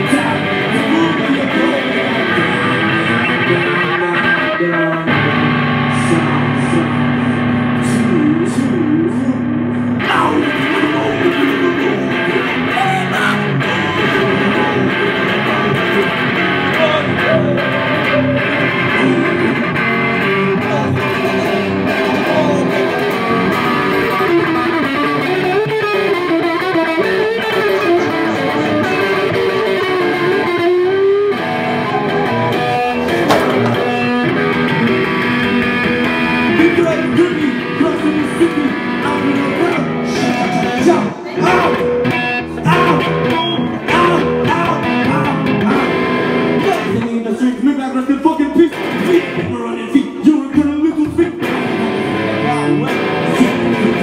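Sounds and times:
live music with electric guitar: 0:00.0 - 0:54.0.

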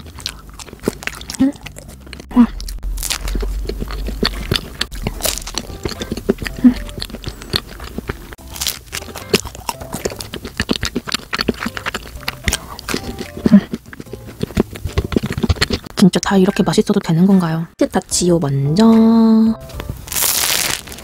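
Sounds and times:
wet mouth clicks: 0:00.0 - 0:08.4, 0:09.0 - 0:16.0
person chewing bread: 0:00.0 - 0:16.0
crust crackling: 0:00.0 - 0:17.2, 0:19.7 - 0:21.0.

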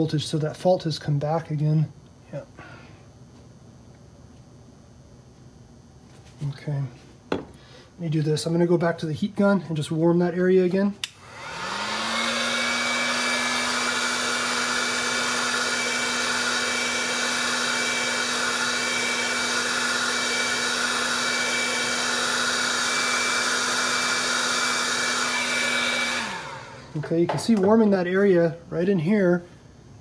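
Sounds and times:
heat gun fan and air rushing: 0:05.9 - 0:30.0.

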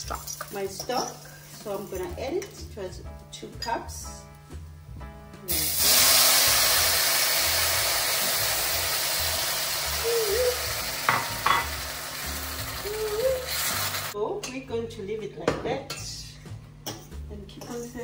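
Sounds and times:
liquid sizzling in hot pan: 0:00.0 - 0:02.1, 0:05.5 - 0:14.2.

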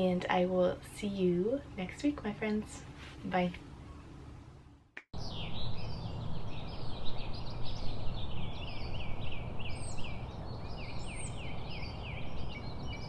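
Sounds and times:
small birds chirping: 0:05.2 - 0:13.0.

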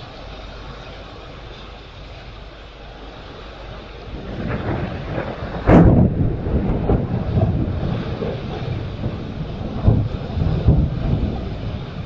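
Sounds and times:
thunder rumbling and cracking: 0:04.0 - 0:12.0.

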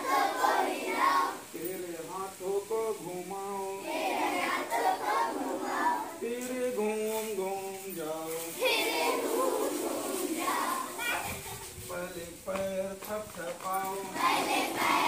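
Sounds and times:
children singing in unison: 0:00.0 - 0:01.8, 0:03.3 - 0:06.2, 0:08.4 - 0:11.0, 0:14.0 - 0:15.0
man singing: 0:01.4 - 0:04.1, 0:06.1 - 0:08.7, 0:11.8 - 0:14.5
hand claps: 0:12.5 - 0:14.0.

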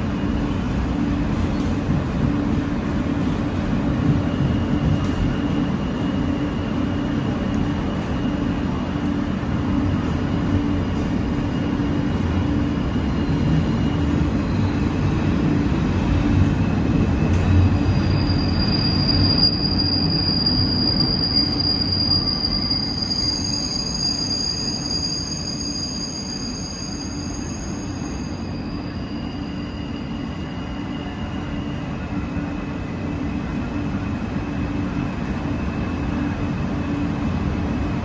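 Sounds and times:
subway wheels rumbling on track: 0:00.0 - 0:38.0
steel wheels squealing: 0:10.6 - 0:15.2, 0:17.6 - 0:32.1.

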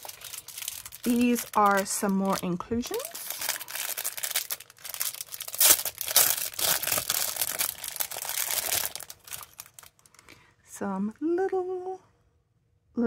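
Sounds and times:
plastic wrapping crinkling and tearing: 0:00.0 - 0:10.3.

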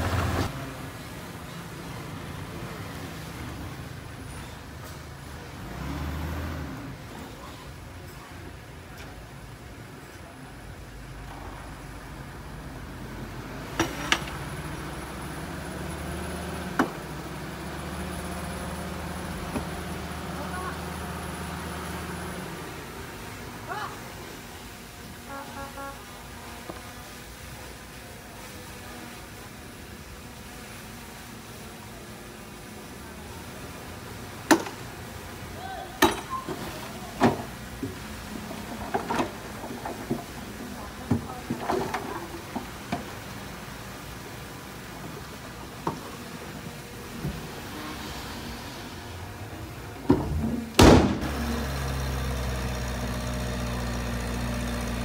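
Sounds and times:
truck engine running: 0:00.0 - 0:07.2, 0:10.8 - 0:26.6, 0:48.3 - 0:55.0.

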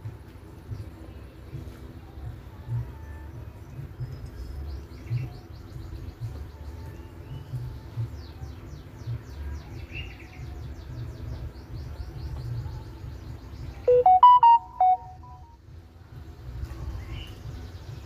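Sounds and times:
electronic jingle: 0:13.9 - 0:15.5.

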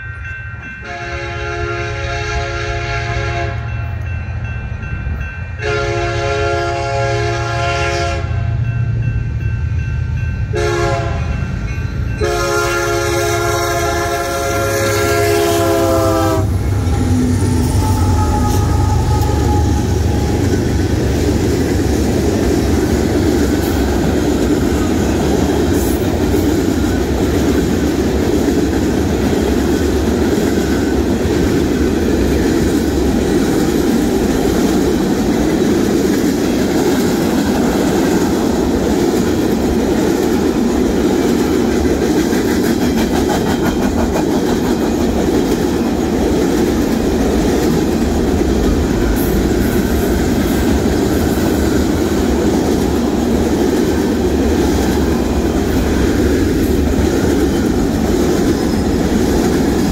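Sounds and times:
train rumbling past: 0:00.0 - 0:59.9
train air horn blasts: 0:00.8 - 0:03.9, 0:05.6 - 0:08.6, 0:10.5 - 0:11.4, 0:12.2 - 0:20.5
wheels clattering on rails: 0:16.6 - 0:59.9.

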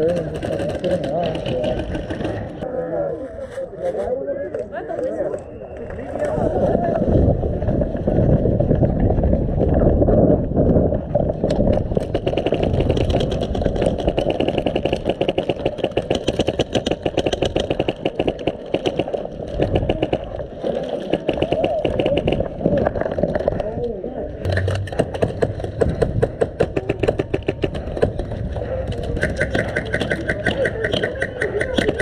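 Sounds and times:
airsoft guns firing full-auto: 0:12.0 - 0:20.2
steady low rumble: 0:24.2 - 0:32.0.

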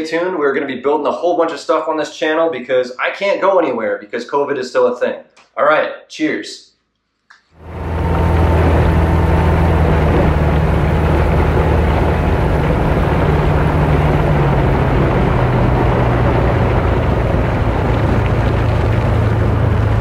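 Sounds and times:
speedboat engine running: 0:07.6 - 0:20.0
water noise: 0:07.6 - 0:20.0
wind noise: 0:07.6 - 0:20.0.

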